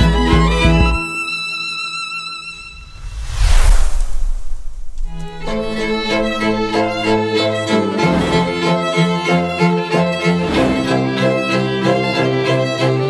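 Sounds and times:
bowed strings: 0:04.3 - 0:13.0.

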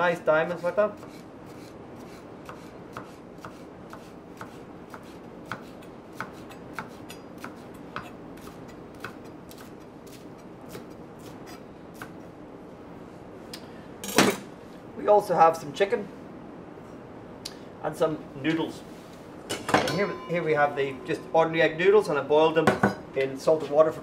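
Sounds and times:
steady background hiss: 0:00.0 - 0:24.0.

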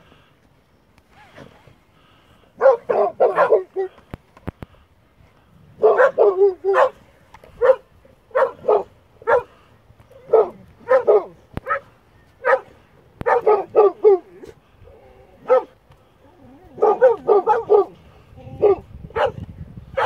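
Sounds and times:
dog barking: 0:02.6 - 0:03.9, 0:05.8 - 0:07.0, 0:07.6 - 0:09.5, 0:10.2 - 0:14.4, 0:15.4 - 0:15.8, 0:16.8 - 0:18.0, 0:18.6 - 0:19.4.

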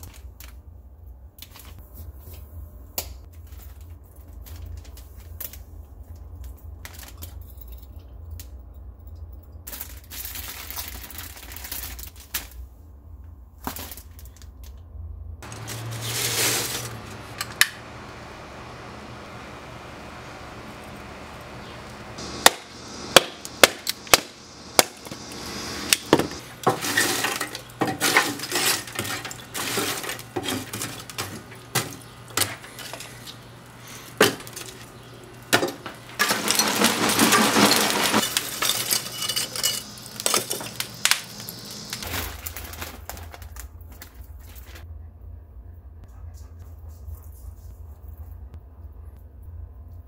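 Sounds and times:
charcoal clinking and cracking: 0:00.0 - 0:00.7, 0:03.0 - 0:08.6, 0:15.4 - 0:18.0, 0:21.8 - 0:44.8
low hum: 0:15.4 - 0:27.8.

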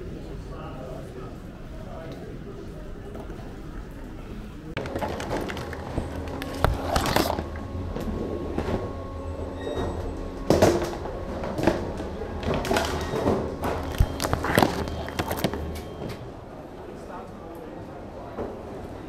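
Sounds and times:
conveyor motor hum: 0:00.0 - 0:19.0
items knocking and clattering: 0:04.8 - 0:07.5, 0:10.5 - 0:16.0.

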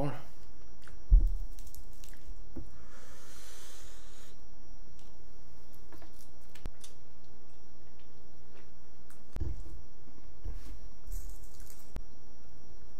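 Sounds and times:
low thump: 0:01.1 - 0:01.4.

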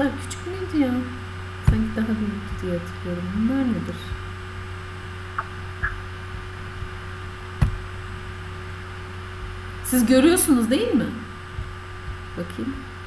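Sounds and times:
electrical hum: 0:00.0 - 0:13.0
faint blips: 0:05.0 - 0:07.0.

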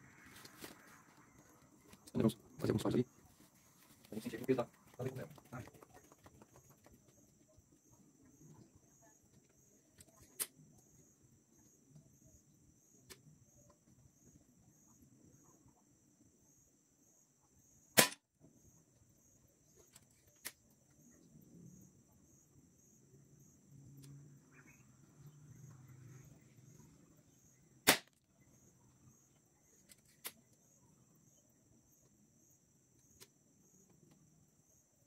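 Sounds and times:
air rifle shots with echo: 0:18.0 - 0:18.2, 0:27.8 - 0:28.1.

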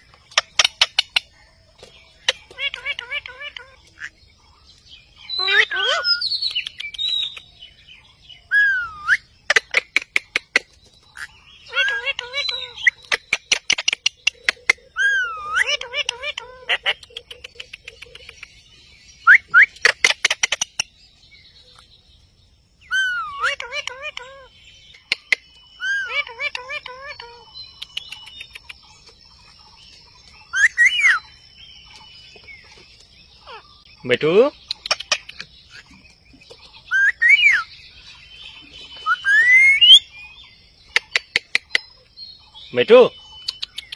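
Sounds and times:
parakeet chatter: 0:00.0 - 0:04.5, 0:05.2 - 0:07.6, 0:08.5 - 0:18.6, 0:19.7 - 0:21.0, 0:22.9 - 0:40.1, 0:40.8 - 0:42.1
sharp clicks: 0:06.5 - 0:07.4
parakeet whistled call: 0:08.5 - 0:09.3, 0:22.9 - 0:24.5, 0:25.8 - 0:27.4, 0:30.5 - 0:31.2, 0:36.9 - 0:37.7, 0:39.0 - 0:40.2.

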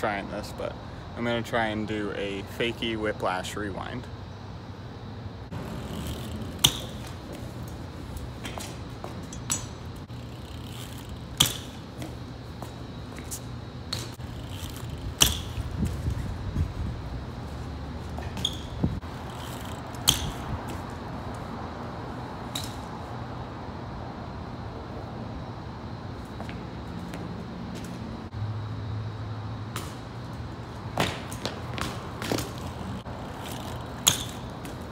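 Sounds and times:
bike tyres knocking on pavement: 0:05.6 - 0:16.3, 0:30.9 - 0:34.9.

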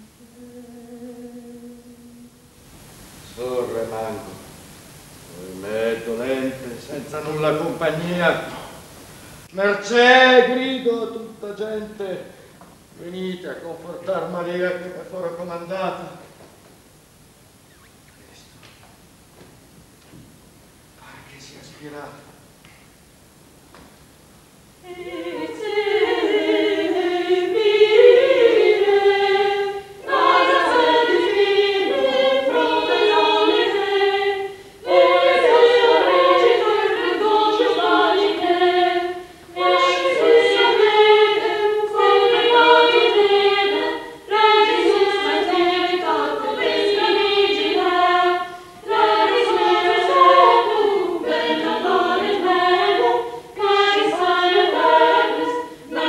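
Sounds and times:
choir singing a cappella: 0:00.0 - 0:02.5, 0:24.8 - 0:56.0.

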